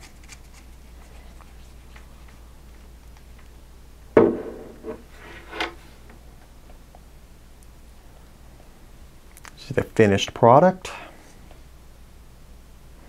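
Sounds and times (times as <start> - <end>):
radio knocking on wooden desk: 4.2 - 4.9.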